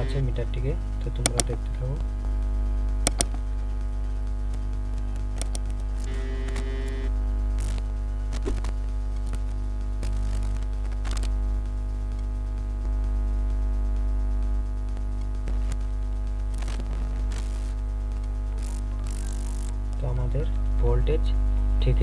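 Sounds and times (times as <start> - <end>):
music with low drone: 0.0 - 22.0
faint clicks: 4.5 - 6.7.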